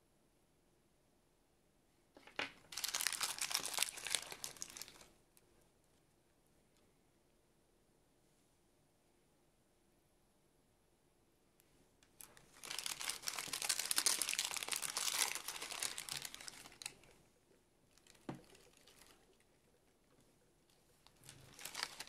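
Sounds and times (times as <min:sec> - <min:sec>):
wrapper crinkling: 0:02.2 - 0:05.1, 0:12.2 - 0:17.2, 0:17.9 - 0:20.0, 0:21.0 - 0:22.0.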